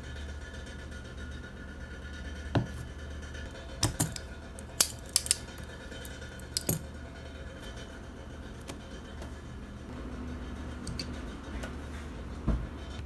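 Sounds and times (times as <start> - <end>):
metal tools clicking and tapping: 3.6 - 6.9.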